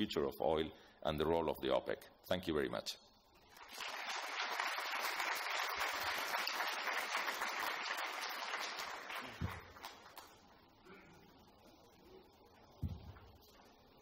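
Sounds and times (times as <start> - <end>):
audience applauding: 3.6 - 10.3.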